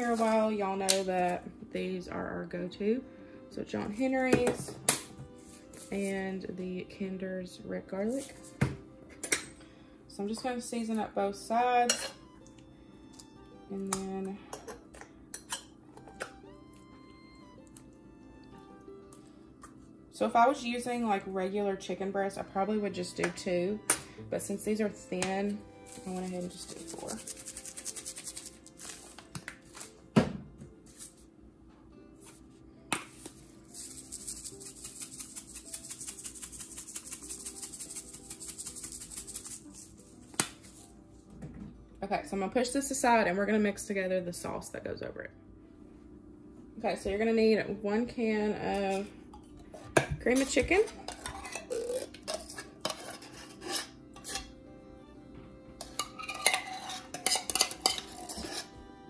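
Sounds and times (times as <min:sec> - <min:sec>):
metal spoon scraping tin can: 0:25.9 - 0:29.0, 0:33.7 - 0:40.0, 0:50.3 - 0:54.5, 0:55.8 - 0:58.8
spice shakers rattling: 0:25.9 - 0:29.0, 0:33.1 - 0:40.8.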